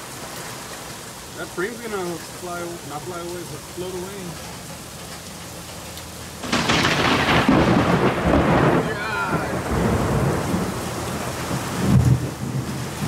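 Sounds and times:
heavy rain on pavement: 0:00.0 - 0:13.0
thunder rumbling: 0:06.4 - 0:13.0.

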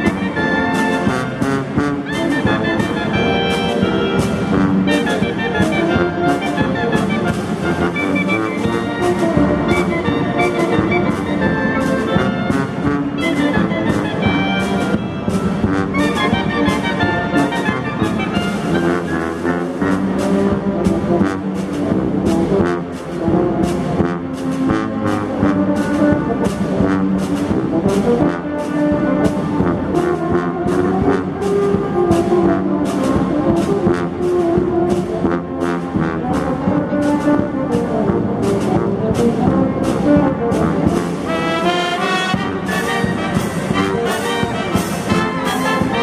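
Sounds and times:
brass instruments playing melody: 0:00.0 - 0:46.0
repeating percussion beat: 0:42.0 - 0:46.0.

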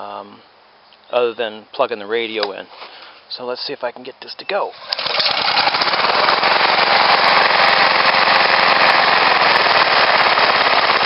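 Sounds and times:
lawn mower engine running: 0:04.7 - 0:11.0.

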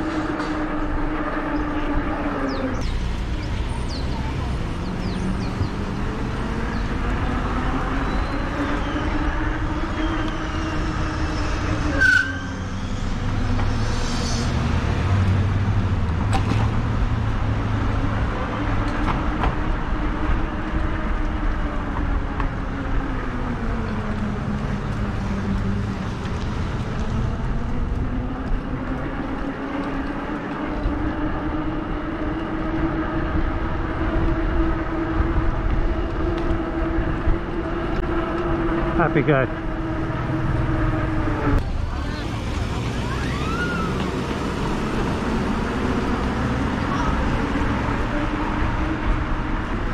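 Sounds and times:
wind and tyre rumble: 0:00.0 - 0:49.9
electric bike motor whining: 0:17.6 - 0:42.1.

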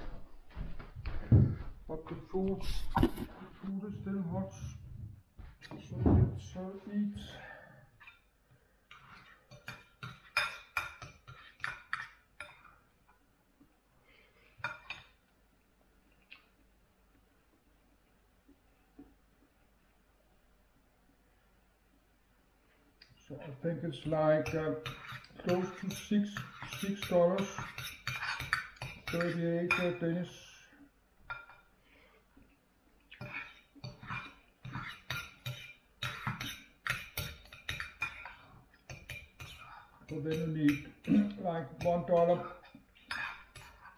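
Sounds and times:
cutlery clinking on a plate: 0:09.0 - 0:12.8, 0:24.4 - 0:30.0.

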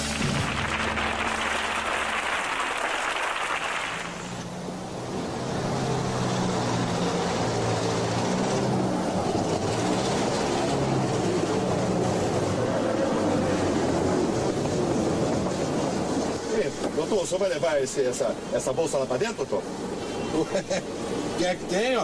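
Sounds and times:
car engine running: 0:00.0 - 0:02.8
audience applause: 0:00.0 - 0:04.5.

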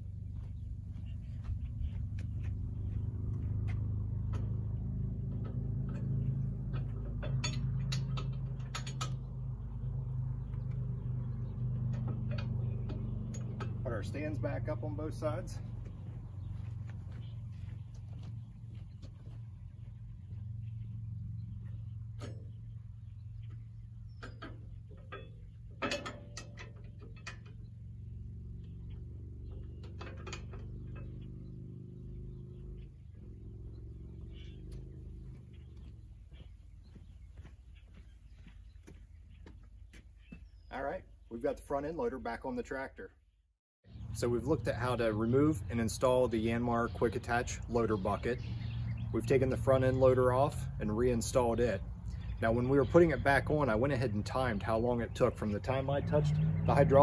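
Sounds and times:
tractor diesel engine idling: 0:00.0 - 0:26.0, 0:44.1 - 0:57.0
metallic clicks and clanks: 0:05.3 - 0:09.6, 0:11.6 - 0:14.4, 0:23.5 - 0:27.9, 0:28.8 - 0:31.4.

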